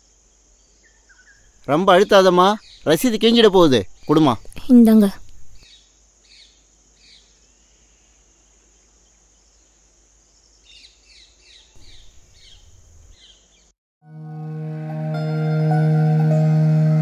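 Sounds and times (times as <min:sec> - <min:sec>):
birds chirping: 0:00.6 - 0:07.4, 0:10.6 - 0:13.7
soft music with low held tone: 0:14.0 - 0:17.0.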